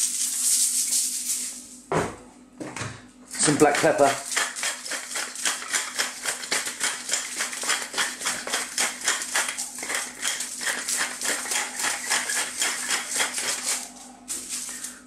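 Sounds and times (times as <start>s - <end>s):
pepper mill grinding: 3.3s - 15.0s.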